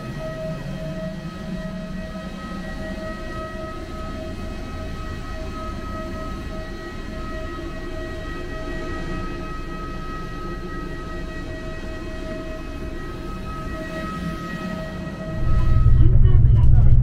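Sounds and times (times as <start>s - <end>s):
jet engine high whine: 0.0s - 17.0s
low rumble: 15.3s - 17.0s.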